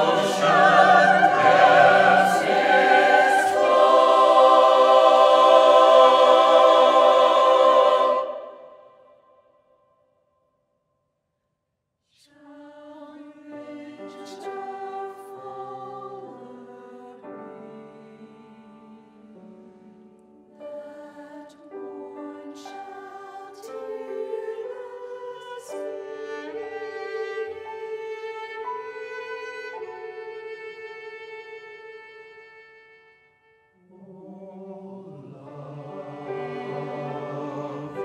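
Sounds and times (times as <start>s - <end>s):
cello: 0.0s - 8.8s, 12.6s - 38.0s
piano: 0.0s - 9.1s, 12.7s - 38.0s
choir singing: 0.0s - 9.2s, 12.3s - 19.9s, 20.6s - 29.1s, 33.8s - 38.0s.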